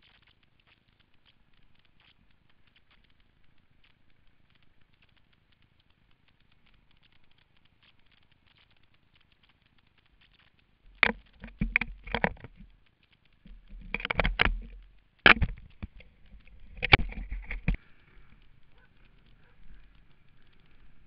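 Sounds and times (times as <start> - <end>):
rustling and scraping on helmet: 9.4 - 21.0
goggle strap rubbing helmet: 13.4 - 17.8.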